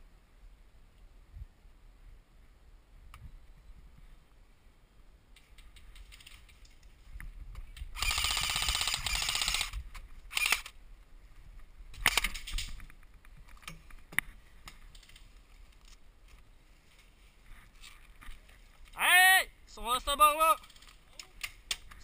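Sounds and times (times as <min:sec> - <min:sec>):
airsoft rifle automatic burst: 0:08.0 - 0:10.7.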